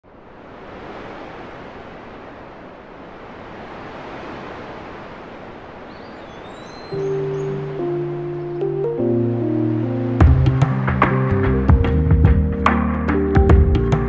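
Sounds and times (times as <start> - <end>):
sea surf rushing: 0.0 - 14.0
faint high chirps: 5.9 - 8.5.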